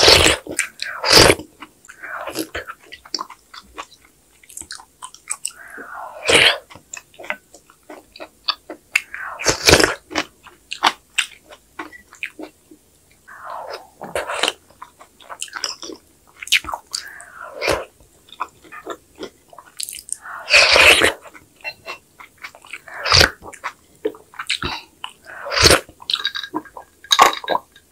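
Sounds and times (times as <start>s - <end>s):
person slurping soup: 0.0s - 2.8s, 5.4s - 6.8s, 9.0s - 10.2s, 13.3s - 14.6s, 16.9s - 19.0s, 19.9s - 22.0s, 22.6s - 26.8s
person chewing wetly: 0.0s - 12.6s, 13.3s - 27.9s
mouth clicks: 4.5s - 7.4s, 8.5s - 12.5s, 16.4s - 23.8s.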